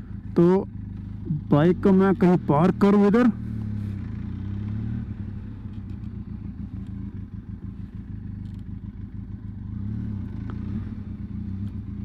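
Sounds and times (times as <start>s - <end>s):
motorcycle engine running low revs: 0.0s - 12.0s.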